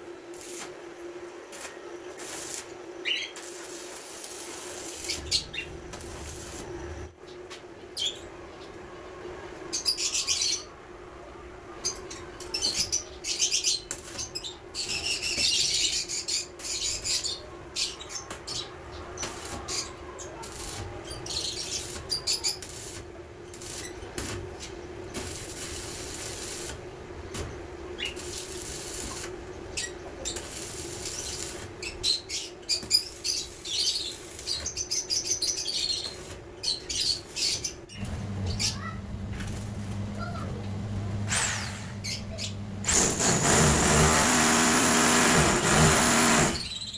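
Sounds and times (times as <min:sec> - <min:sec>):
welding arc crackling: 0:00.0 - 0:07.1, 0:13.7 - 0:14.3, 0:19.2 - 0:29.5, 0:30.2 - 0:34.8, 0:35.8 - 0:40.4, 0:42.9 - 0:46.8
steady hum: 0:37.2 - 0:46.7.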